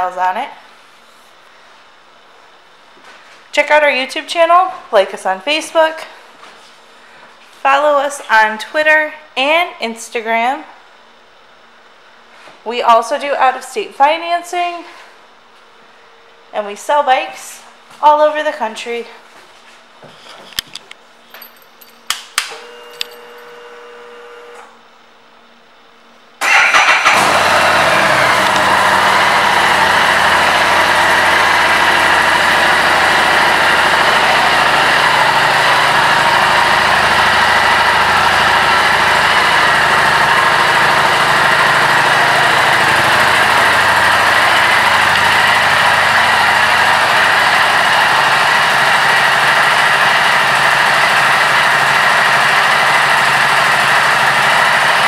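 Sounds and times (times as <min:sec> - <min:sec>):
motorcycle engine idling: 0:26.8 - 0:55.0.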